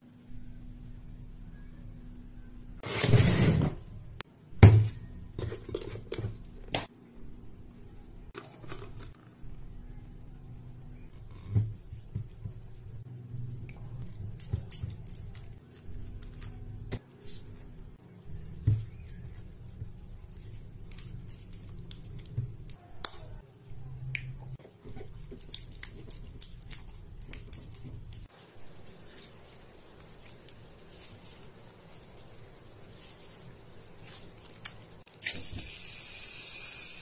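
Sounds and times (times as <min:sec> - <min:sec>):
low steady hum: 0:00.0 - 0:35.1
sticky squishing of slime: 0:11.0 - 0:35.1.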